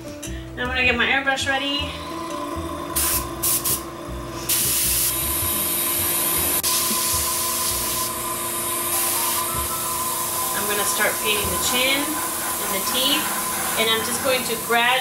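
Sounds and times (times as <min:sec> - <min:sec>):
airbrush spraying hiss: 0:03.0 - 0:03.8, 0:04.4 - 0:05.8, 0:06.6 - 0:15.0.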